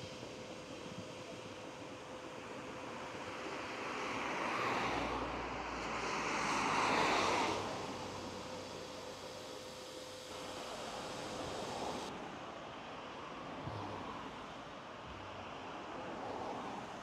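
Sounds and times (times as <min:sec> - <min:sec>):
road traffic passing: 0:03.8 - 0:12.1.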